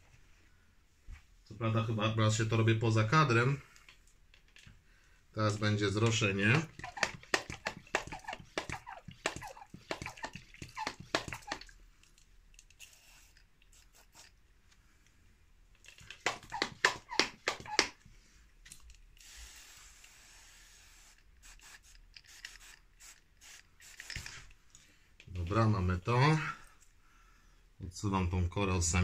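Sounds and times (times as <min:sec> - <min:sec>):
mist sprayer clicking strokes: 0:06.0 - 0:11.7, 0:16.0 - 0:18.0, 0:19.2 - 0:24.3
spray hiss: 0:12.8 - 0:14.3, 0:19.2 - 0:24.3.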